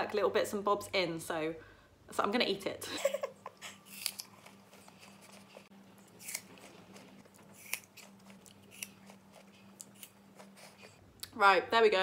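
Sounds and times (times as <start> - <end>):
person chewing apple: 3.6 - 11.3.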